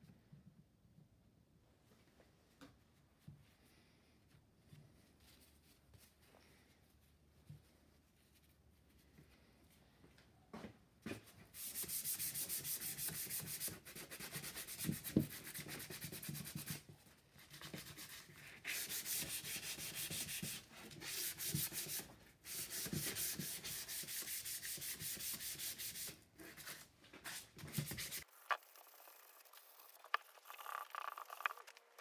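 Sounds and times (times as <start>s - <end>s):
sandpaper sanding wood: 11.6s - 16.8s, 18.7s - 26.7s, 27.3s - 28.3s.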